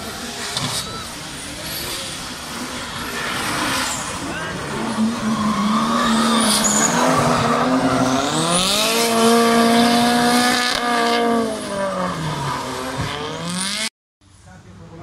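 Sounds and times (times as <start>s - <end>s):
car engine revving: 0.2s - 13.9s
tyres squealing: 2.9s - 9.4s.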